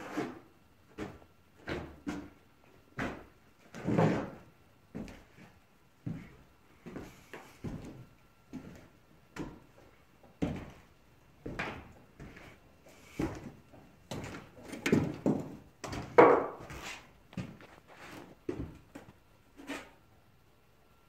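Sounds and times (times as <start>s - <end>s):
footsteps on wooden floor: 3.0s - 10.8s, 11.4s - 19.2s.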